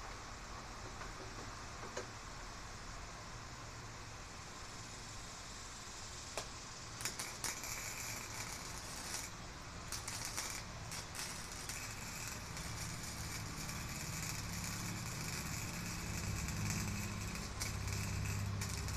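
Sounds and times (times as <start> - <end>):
electric arc welding crackling: 6.4 - 18.9.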